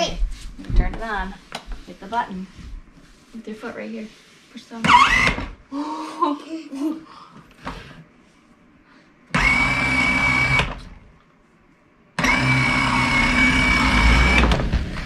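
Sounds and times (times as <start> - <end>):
toy motorcycle motor whining: 4.9 - 5.4.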